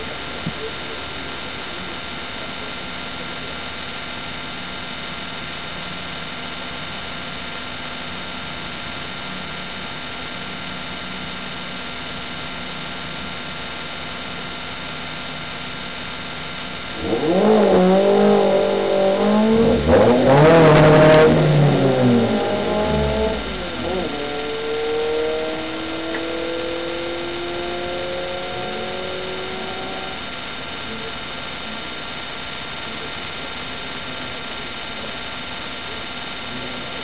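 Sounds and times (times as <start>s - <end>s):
race car engine revving: 16.7s - 30.8s.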